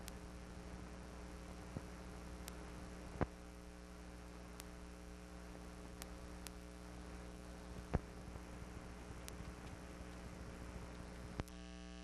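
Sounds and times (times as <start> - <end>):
faint ticks: 0.0 - 0.2, 1.7 - 3.4, 4.5 - 4.9, 5.9 - 6.8, 9.2 - 11.7
electrical mains hum with hiss: 0.0 - 12.0.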